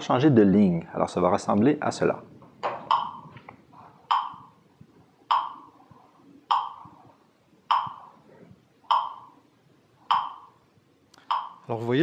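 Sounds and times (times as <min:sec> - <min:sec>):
metronome ticking: 0:02.9 - 0:03.3, 0:04.1 - 0:04.6, 0:05.3 - 0:05.8, 0:06.5 - 0:07.0, 0:07.7 - 0:08.2, 0:08.8 - 0:09.4, 0:10.1 - 0:10.6, 0:11.2 - 0:11.7.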